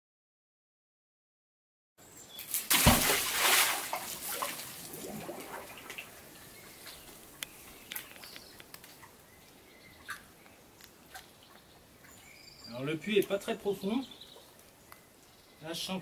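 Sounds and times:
water drips: 2.4s - 13.5s
magnet splashing into water: 2.5s - 6.1s
water sloshing: 2.5s - 8.2s.

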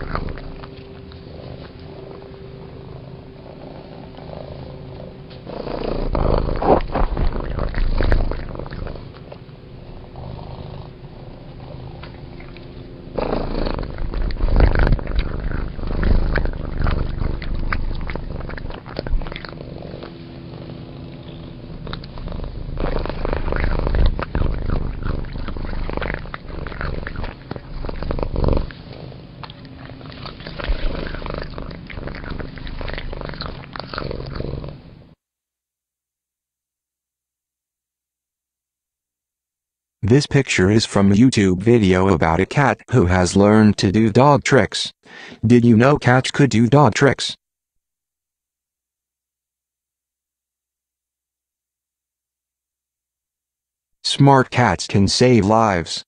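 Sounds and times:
cat crunching kibble: 0.0s - 34.8s.

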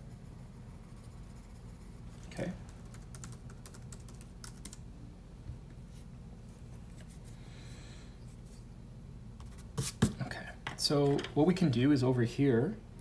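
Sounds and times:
pencil scratching on paper: 0.0s - 2.3s
low steady hum: 0.0s - 13.0s.

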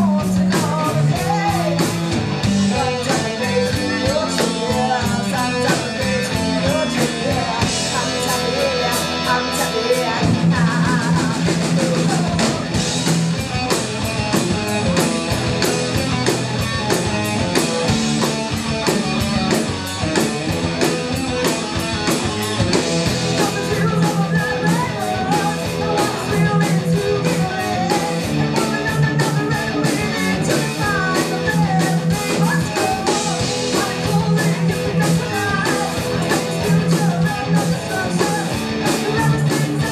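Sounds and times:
woman singing: 0.0s - 1.9s, 2.7s - 12.8s, 23.3s - 39.9s
drum kit beat: 0.0s - 39.9s
rock band playing live: 0.0s - 39.9s.

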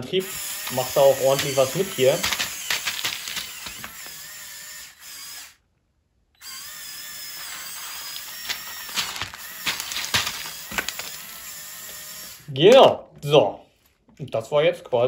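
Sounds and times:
electric motors whining: 0.2s - 5.6s, 6.4s - 12.5s
plastic parts clicking: 0.6s - 4.2s, 7.5s - 11.3s.

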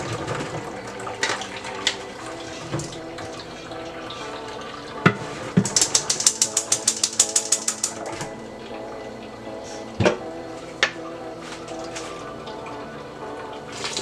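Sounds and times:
strainer rattling against container: 5.6s - 8.2s.

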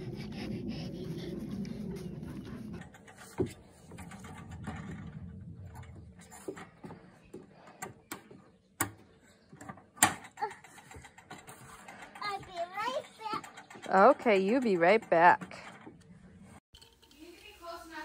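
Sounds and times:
low rumble: 0.0s - 3.0s, 3.7s - 7.2s.

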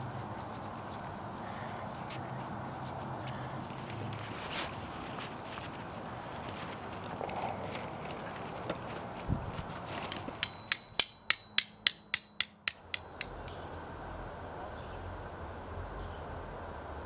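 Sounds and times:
hammer striking steel stake: 10.1s - 13.6s.

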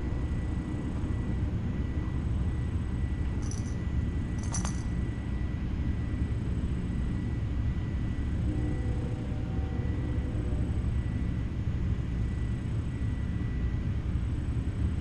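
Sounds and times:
faint electrical whine: 0.0s - 15.0s
metallic jingles: 3.4s - 3.8s, 4.4s - 4.9s.

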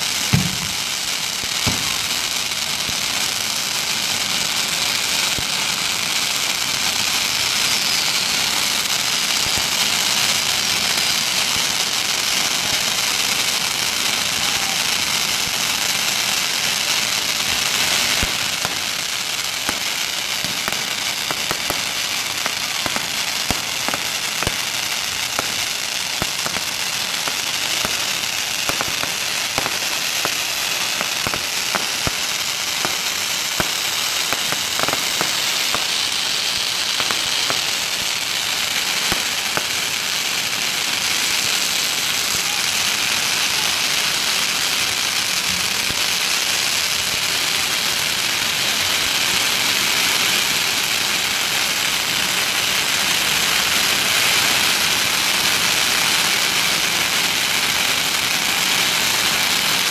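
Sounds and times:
loud firecracker bangs: 0.0s - 3.0s, 17.3s - 43.0s
firecrackers crackling: 0.0s - 59.9s.

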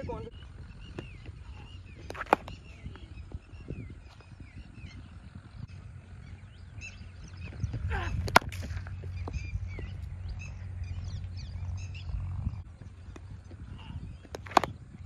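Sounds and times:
birds chirping: 0.0s - 15.0s
low steady rumble: 0.0s - 15.0s
cricket bat striking ball: 2.0s - 2.9s, 8.1s - 9.4s, 14.3s - 14.8s.

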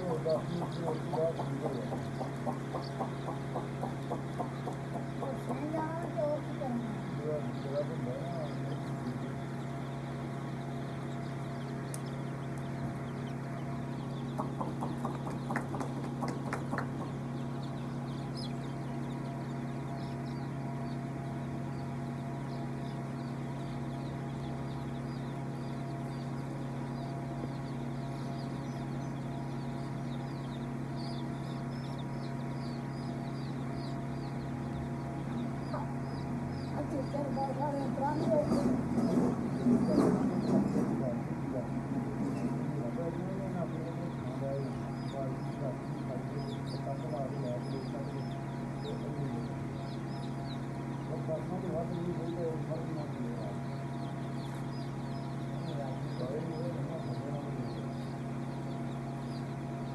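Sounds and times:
chicks peeping: 0.0s - 59.9s
steady low hum: 0.0s - 59.9s
sharp clicks: 11.9s - 12.7s.

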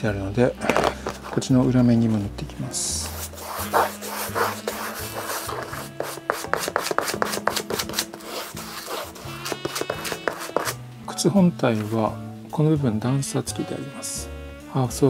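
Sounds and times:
stiff brush scrubbing: 2.9s - 10.8s.

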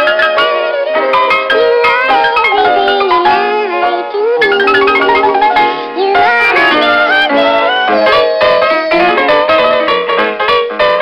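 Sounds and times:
cartoon music: 4.4s - 10.0s.

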